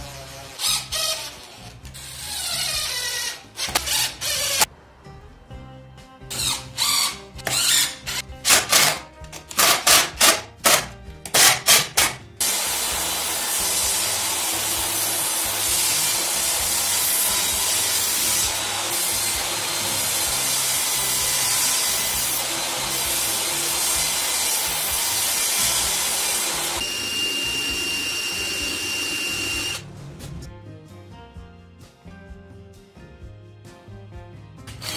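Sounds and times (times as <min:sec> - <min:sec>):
cordless drill whirring: 0:00.5 - 0:04.7, 0:06.3 - 0:08.9, 0:18.5 - 0:29.8
table saw running: 0:12.4 - 0:29.8.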